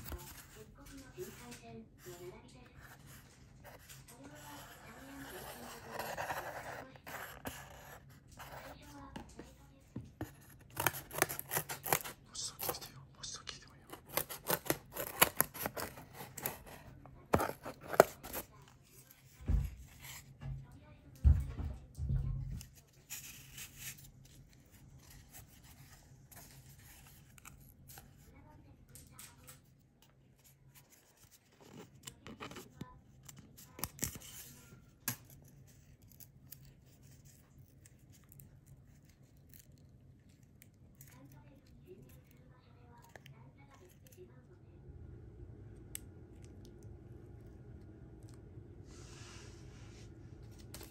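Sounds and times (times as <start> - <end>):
scissors snipping cardboard: 10.2 - 12.7, 13.9 - 18.5.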